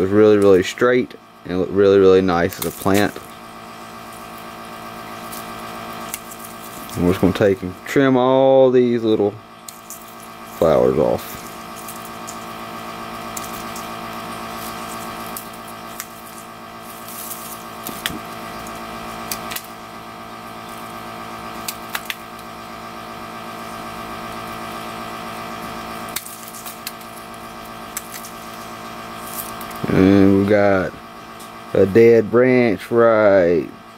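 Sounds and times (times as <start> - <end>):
steady background hum: 0.0 - 33.9
nippers snipping clicks: 21.6 - 22.2.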